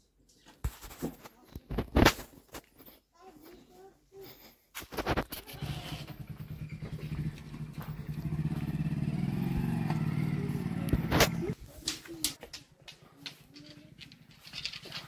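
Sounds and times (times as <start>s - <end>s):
engine running: 5.6s - 11.6s.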